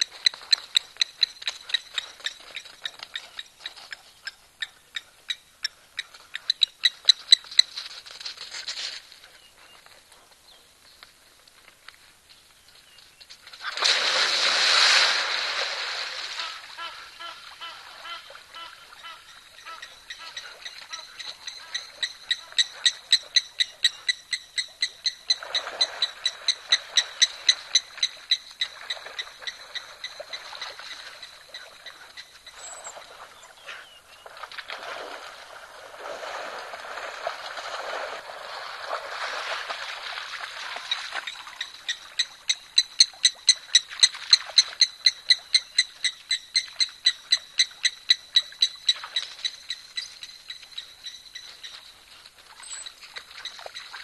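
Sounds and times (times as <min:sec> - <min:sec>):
water splashing: 0:13.6 - 0:19.7, 0:34.2 - 0:41.9.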